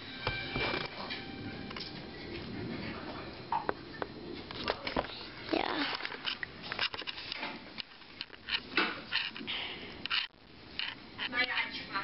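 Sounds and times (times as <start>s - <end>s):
camera handling rustling: 5.9s - 9.4s.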